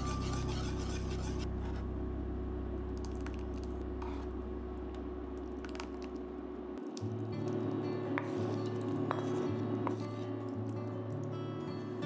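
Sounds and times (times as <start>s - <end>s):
whisk scraping a steel pan: 0.0s - 1.5s
low steady hum: 0.0s - 12.0s.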